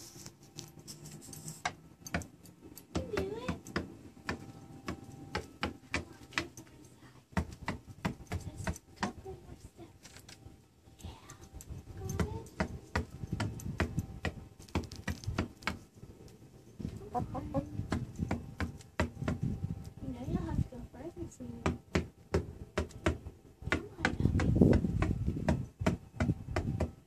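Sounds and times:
hen clucking: 16.9 - 17.8
hen pecking wooden floor: 17.0 - 19.4.

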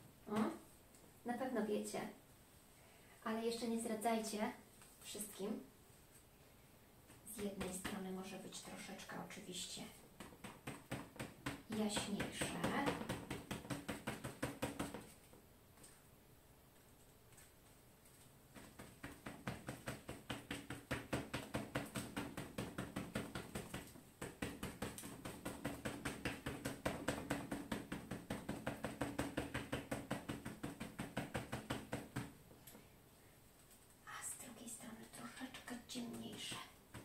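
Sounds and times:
foil ball tapping on board: 10.2 - 15.1, 18.5 - 32.4, 36.1 - 37.0.

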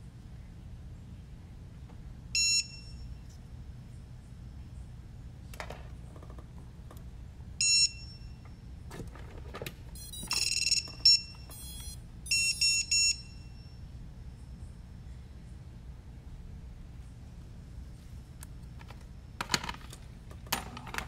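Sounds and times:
short high electronic beeps: 10.0 - 13.4.

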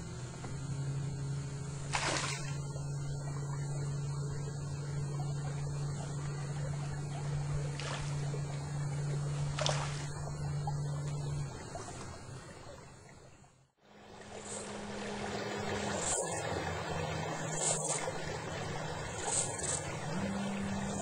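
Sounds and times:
electric motor humming: 0.0 - 12.9, 13.9 - 21.0.

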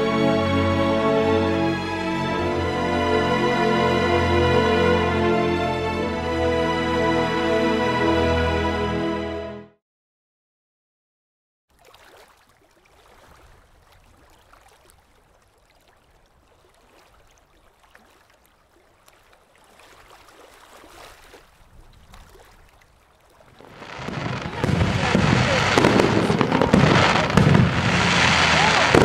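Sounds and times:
fireworks crackling bursts: 23.6 - 29.0.

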